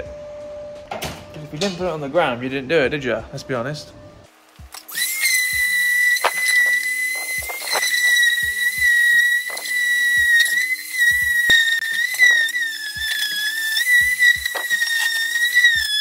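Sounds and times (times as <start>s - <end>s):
sander whining on steel: 4.7s - 16.0s.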